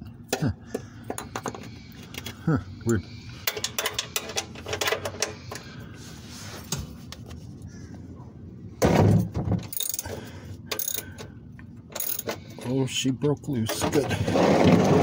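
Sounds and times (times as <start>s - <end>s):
metal wrench clicking and clinking: 9.7s - 11.2s, 11.9s - 12.4s.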